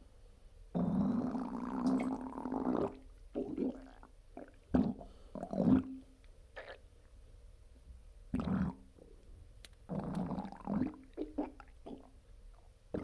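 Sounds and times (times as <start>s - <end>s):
stomach gurgling: 0.8s - 6.8s, 8.3s - 8.9s, 9.9s - 12.2s.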